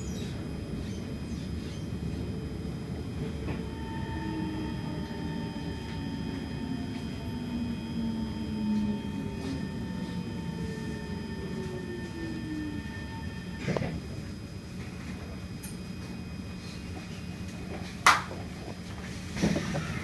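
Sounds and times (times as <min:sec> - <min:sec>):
train wheels rumbling on track: 0:00.0 - 0:16.2
train motor whine: 0:00.0 - 0:20.0
steady high tone: 0:02.4 - 0:15.3.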